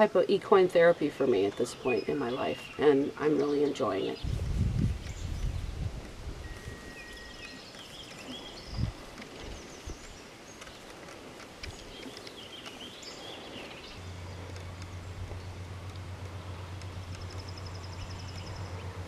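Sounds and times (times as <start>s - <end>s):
faint bird chirps: 6.4s - 10.7s
small clicks: 7.4s - 13.6s, 14.2s - 18.7s
steady low hum: 12.3s - 19.0s.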